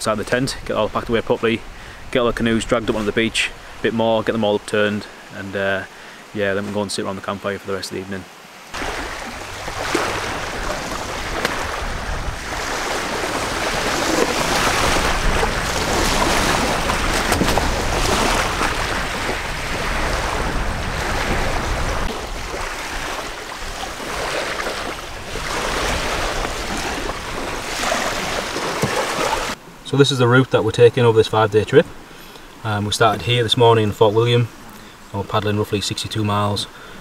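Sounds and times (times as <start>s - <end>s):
small waves washing on shingle: 8.7s - 29.6s
wind on microphone: 8.8s - 29.6s.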